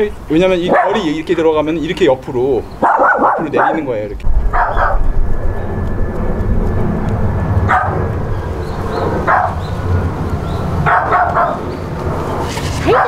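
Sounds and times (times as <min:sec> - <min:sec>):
dog barking: 0:00.7 - 0:01.1, 0:02.8 - 0:03.9, 0:04.5 - 0:05.1, 0:07.7 - 0:08.1, 0:09.2 - 0:09.7, 0:10.8 - 0:11.7.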